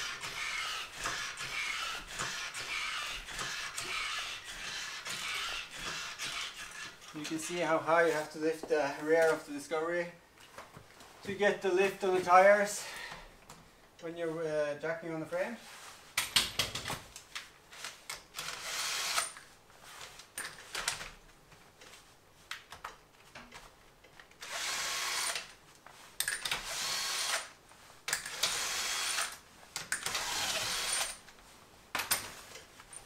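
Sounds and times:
cordless drill spinning: 0:00.0 - 0:07.1, 0:18.4 - 0:19.4, 0:24.4 - 0:25.5, 0:26.4 - 0:27.5, 0:28.2 - 0:29.4, 0:30.0 - 0:31.2.

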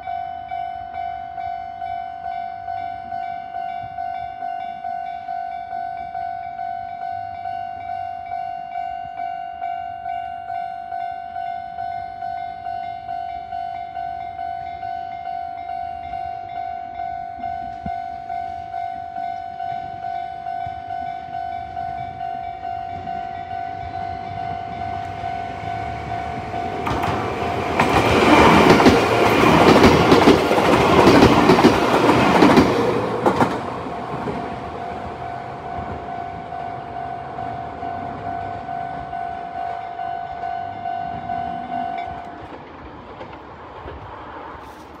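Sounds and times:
electric train passing: 0:00.0 - 0:45.0
wheels clattering over rail joints: 0:24.7 - 0:39.3, 0:42.0 - 0:45.0
level crossing bell ringing: 0:34.7 - 0:42.2.

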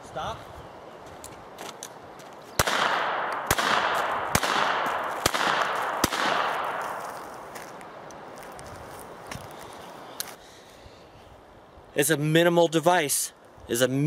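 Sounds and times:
revolver shots echoing: 0:02.6 - 0:07.0.

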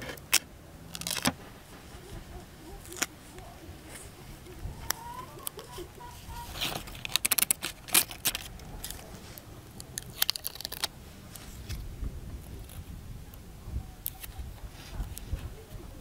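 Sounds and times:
paper peeled off adhesive film: 0:00.0 - 0:11.8
plastic film crackling: 0:00.0 - 0:11.8.

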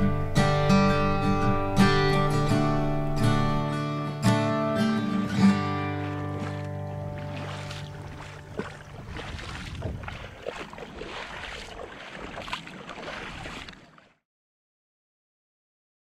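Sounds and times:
water splashing against kayak hull: 0:05.5 - 0:14.2.

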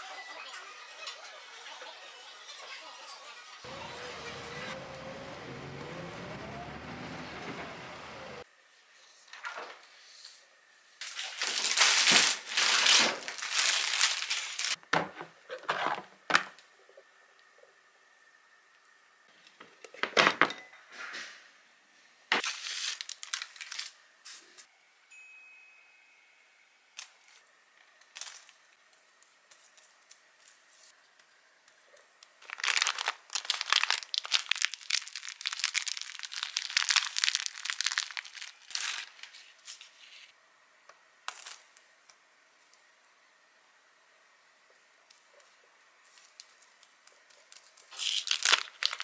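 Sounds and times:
crinkling and rustling: 0:11.0 - 0:17.0, 0:22.4 - 0:24.7, 0:27.0 - 0:40.3, 0:45.1 - 0:49.0.

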